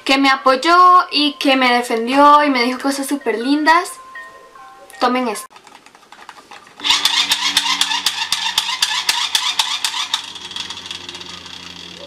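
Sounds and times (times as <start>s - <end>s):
rapid irregular clicking: 5.5s - 12.0s
toy motor whirring: 6.8s - 12.0s.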